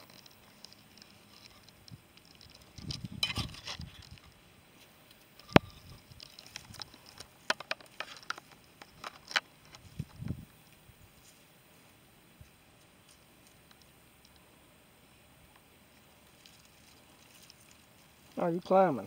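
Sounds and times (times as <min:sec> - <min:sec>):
light clicks and ticks: 0:00.0 - 0:03.0
dry leaves rustling: 0:14.9 - 0:19.0.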